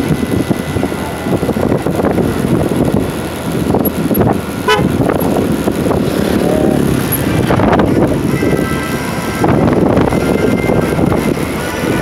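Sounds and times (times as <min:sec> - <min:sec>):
motorcycle engine and road noise: 0:00.0 - 0:12.0
vehicle horn toot: 0:04.6 - 0:05.0, 0:10.1 - 0:11.1.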